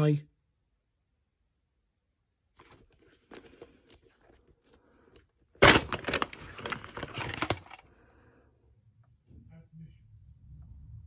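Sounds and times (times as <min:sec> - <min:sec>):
crackling plastic clatter: 0:05.1 - 0:07.9.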